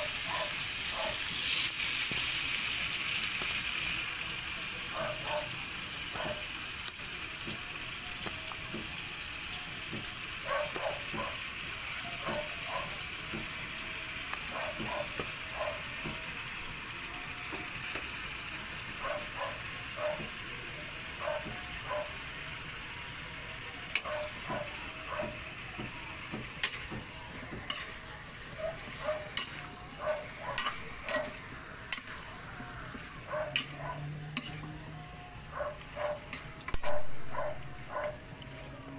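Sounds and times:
chicken wings sizzling in hot oil: 0.0s - 38.9s
spatula scraping and knocking wok: 23.9s - 38.7s.

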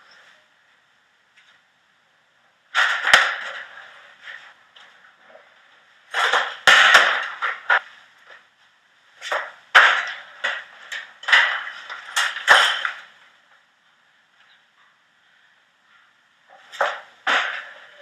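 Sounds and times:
sharp knocks: 6.1s - 7.8s, 16.7s - 18.0s.

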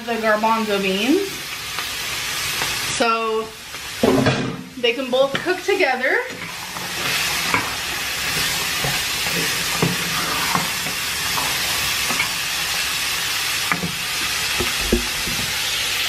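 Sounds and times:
food sizzling in oil: 0.0s - 16.0s
spatula scraping and tapping pan: 6.3s - 12.4s, 13.7s - 15.5s.

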